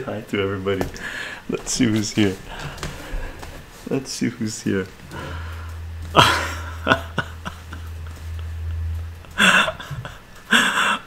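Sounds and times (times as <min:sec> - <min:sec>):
low hum: 0:00.3 - 0:11.0
man laughing breathily: 0:05.1 - 0:11.0.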